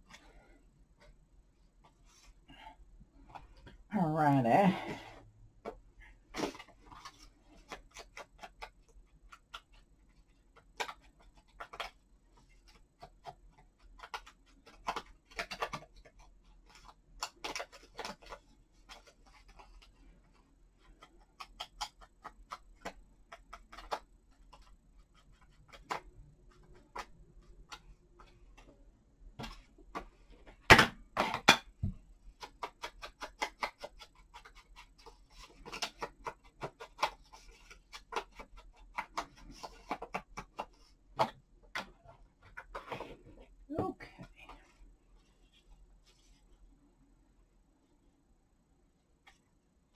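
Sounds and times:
paper rustling and tapping: 5.6s - 28.8s, 29.4s - 43.2s.

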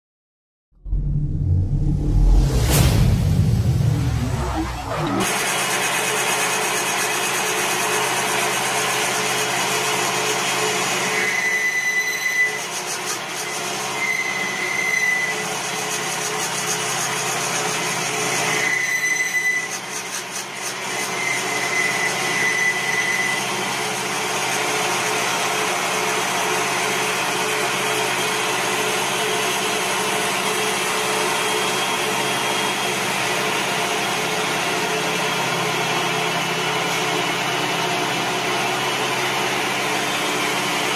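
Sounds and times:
short high whine: 0.8s - 5.5s.

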